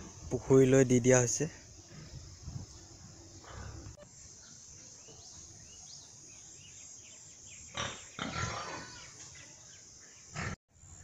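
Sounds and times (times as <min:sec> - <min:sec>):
pigs grunting and calling: 0:07.7 - 0:09.2, 0:10.3 - 0:10.6
pigs crying loudly: 0:07.8 - 0:09.1.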